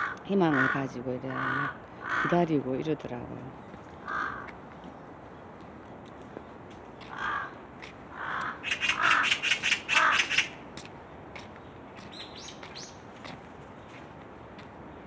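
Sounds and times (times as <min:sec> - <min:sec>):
crows cawing: 0:00.0 - 0:02.4, 0:04.0 - 0:04.6, 0:07.0 - 0:10.6.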